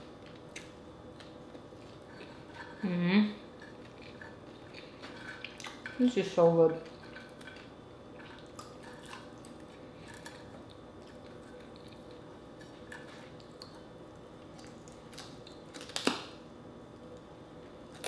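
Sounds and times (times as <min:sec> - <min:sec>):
chewing crunches: 0:03.4 - 0:06.0, 0:06.8 - 0:16.4.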